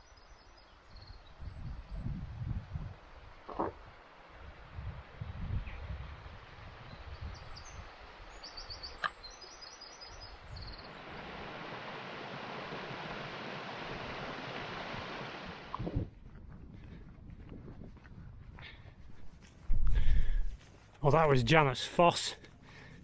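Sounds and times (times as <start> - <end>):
wind rumbling on microphone: 0.9 - 9.0, 10.1 - 20.9
small birds chirping: 6.9 - 11.4
stream rushing over rocks: 10.8 - 16.1.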